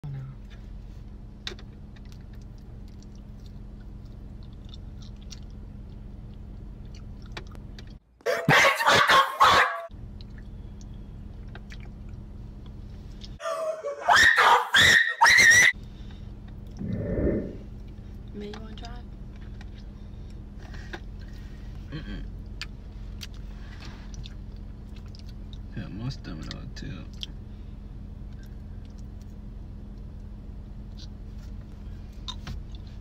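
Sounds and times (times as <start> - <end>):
steady low hum: 0.0 - 8.2, 9.9 - 13.4, 15.7 - 33.0
faint wet chewing: 1.5 - 8.0, 10.1 - 13.4, 22.4 - 25.7.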